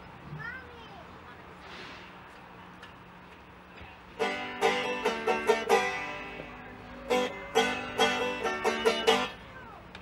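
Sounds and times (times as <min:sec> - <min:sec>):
banjo picking: 0:04.1 - 0:09.4.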